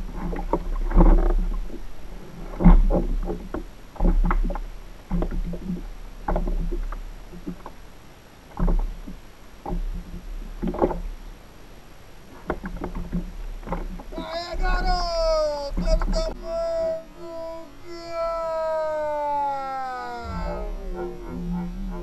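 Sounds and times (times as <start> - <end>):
low rumble: 20.2 - 22.0.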